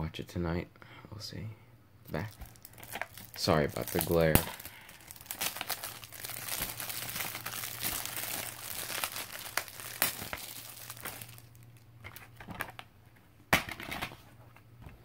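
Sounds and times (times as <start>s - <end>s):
shrink wrap crinkling: 2.1s - 12.9s.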